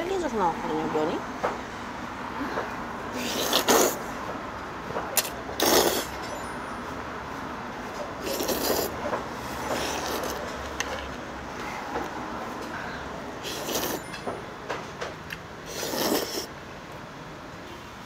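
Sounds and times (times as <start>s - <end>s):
person slurping noodles: 3.1s - 4.0s, 5.2s - 6.2s, 8.2s - 10.4s, 13.4s - 14.1s, 15.6s - 16.5s.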